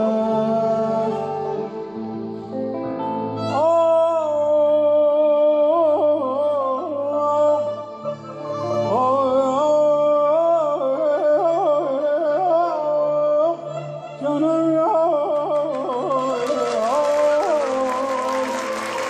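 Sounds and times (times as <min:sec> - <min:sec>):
man singing ornamented vocal line: 0:00.0 - 0:19.0
applause: 0:15.8 - 0:19.0.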